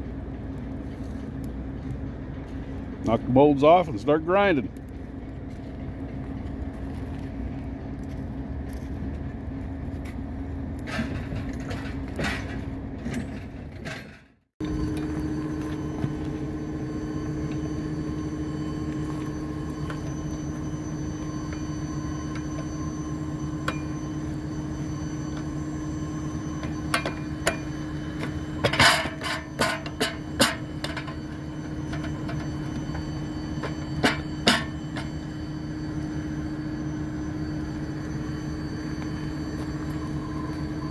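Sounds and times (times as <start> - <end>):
engine humming: 14.6 - 40.9.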